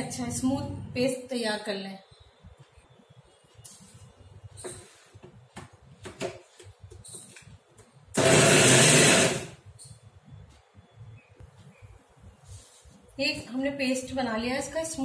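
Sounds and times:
mixer grinder running: 8.2 - 9.6.

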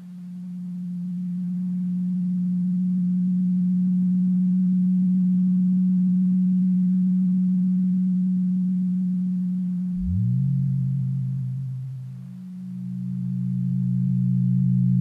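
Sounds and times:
low synthesizer tone: 9.8 - 15.0
lower tone sweeping up: 9.9 - 15.0.

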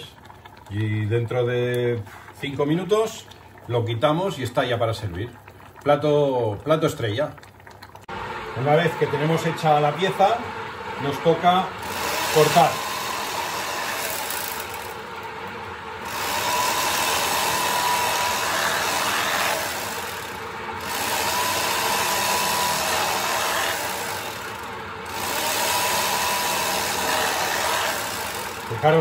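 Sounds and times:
electric carving knife whine: 11.8 - 15.0, 16.0 - 29.0.

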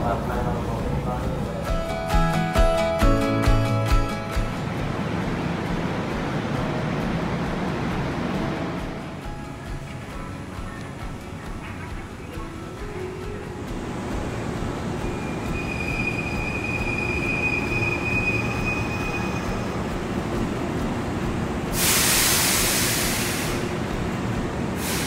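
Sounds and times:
electric train rumbling: 0.0 - 25.0
high wheel squeal: 15.0 - 19.9
loud hiss of air: 21.6 - 24.0, 24.7 - 25.0.

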